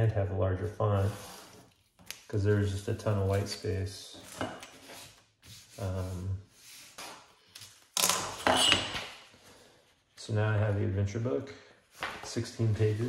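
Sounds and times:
paper rubbing: 1.0s - 2.7s, 4.7s - 7.2s
paper rustling scrape: 1.0s - 3.6s, 4.2s - 7.8s, 11.9s - 13.0s.

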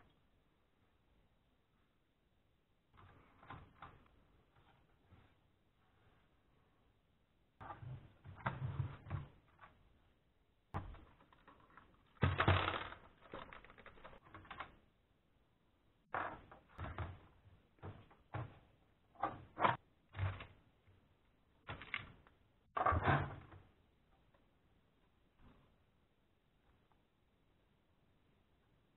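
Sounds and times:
plastic laptop clicks and scrapes: 11.1s - 14.8s.

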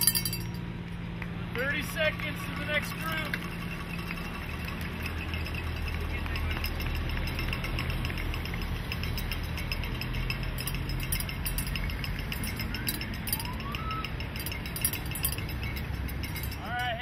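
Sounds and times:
metallic clinking and ticking: 0.0s - 0.7s, 1.6s - 17.0s
car engine and tyre hum: 0.0s - 17.0s
short rising whistle: 12.7s - 14.3s.

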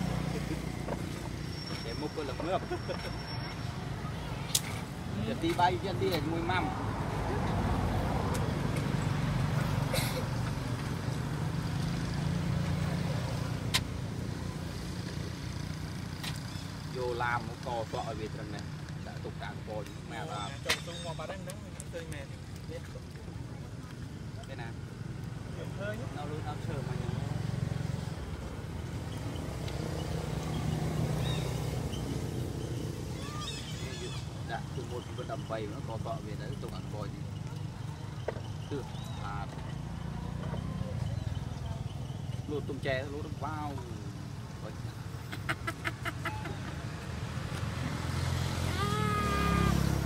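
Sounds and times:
engine humming: 26.2s - 50.0s
high chirping calls: 29.1s - 35.5s.

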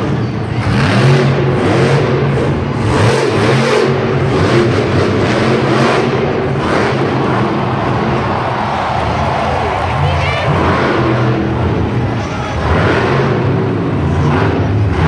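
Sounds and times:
truck engine revving hard: 0.0s - 15.0s.

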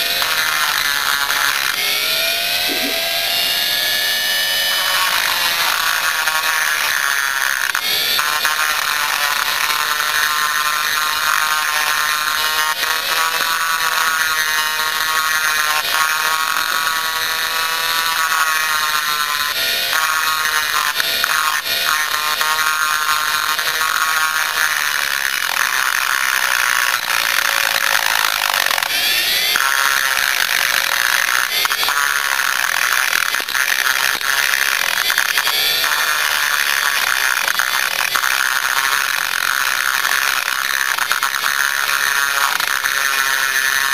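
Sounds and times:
rotary tool grinding metal: 0.0s - 43.9s.

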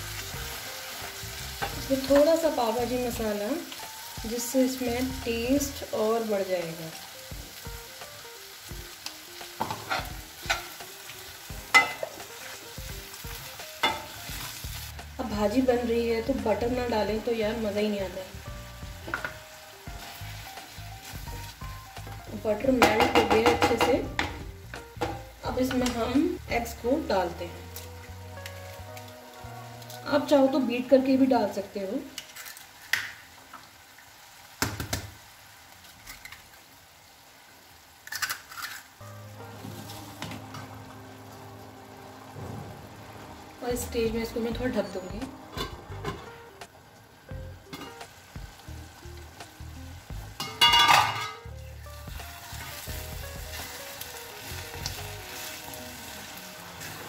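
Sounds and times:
low sizzle: 0.0s - 57.0s
eggshells cracking: 38.0s - 39.0s.

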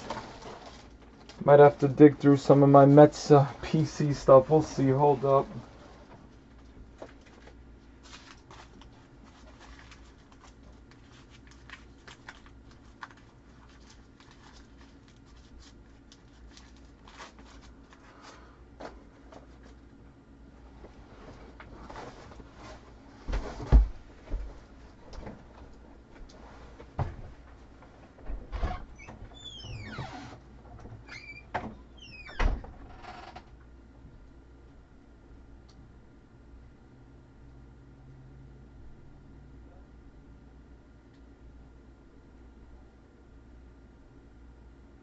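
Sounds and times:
low steady hum: 0.0s - 45.0s
faint clicks and rustles: 5.4s - 20.0s.

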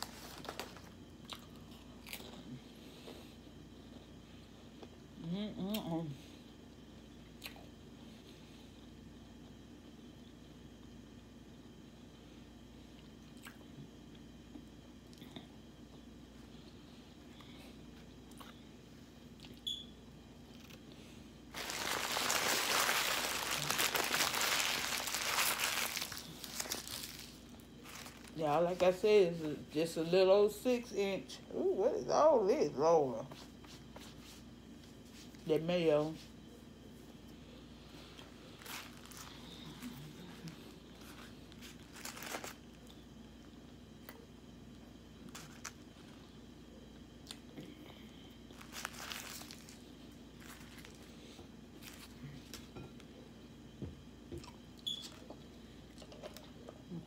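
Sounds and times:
paper wrapper crinkling: 0.0s - 1.0s, 21.5s - 29.0s, 38.2s - 42.9s, 45.3s - 46.2s, 48.5s - 51.1s, 51.8s - 52.7s.

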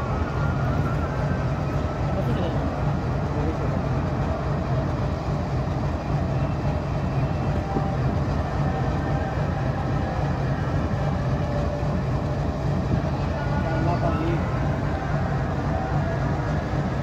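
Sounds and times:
locomotive engine rumbling: 0.0s - 17.0s.

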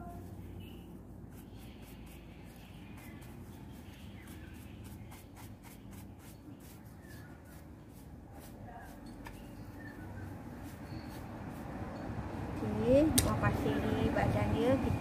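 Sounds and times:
hand scraping coconut husk: 0.0s - 9.1s, 10.3s - 11.9s.

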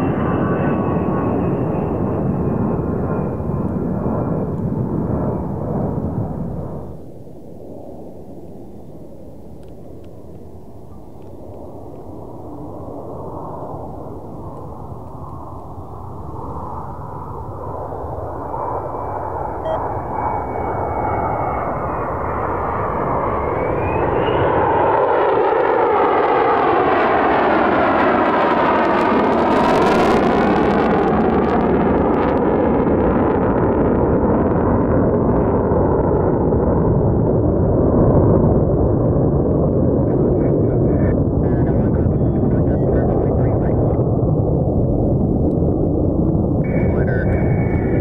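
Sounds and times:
thin jet whine: 0.0s - 28.4s, 46.5s - 48.0s
jet passing with whoosh: 0.0s - 31.2s
jet engine rumble: 0.0s - 48.0s.

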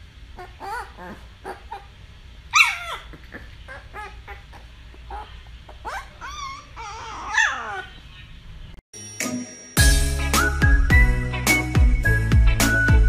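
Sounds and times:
puppy whimpering and whining: 0.4s - 1.9s, 2.5s - 8.1s.

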